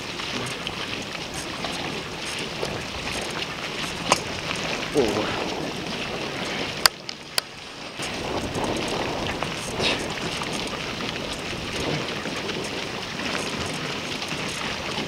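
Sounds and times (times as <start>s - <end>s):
water rushing and splashing: 0.0s - 15.0s
wind noise on microphone: 0.0s - 15.0s.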